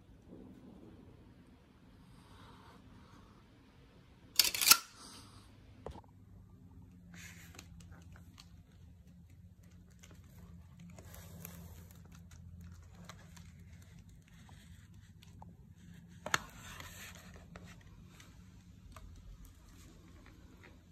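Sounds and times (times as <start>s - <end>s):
handling rustles and scrapes: 6.9s - 20.9s.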